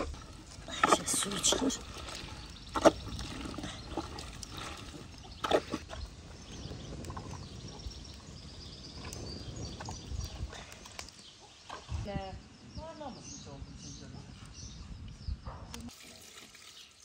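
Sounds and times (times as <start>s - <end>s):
juice trickling and pouring: 0.0s - 6.1s, 15.9s - 17.0s.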